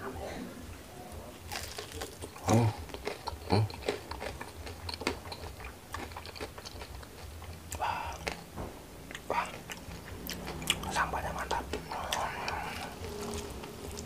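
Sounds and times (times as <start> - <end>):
crunchy bites: 1.4 - 8.5
chewing clicks: 1.5 - 8.5, 9.1 - 14.0.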